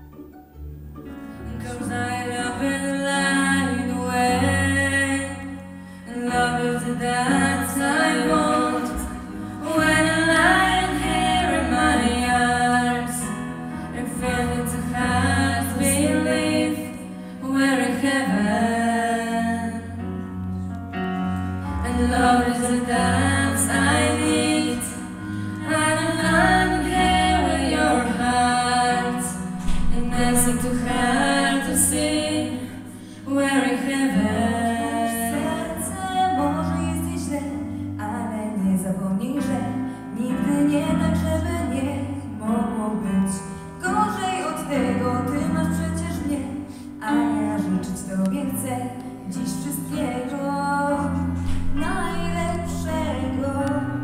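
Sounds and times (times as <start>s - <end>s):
person singing into microphone: 25.7s - 37.5s.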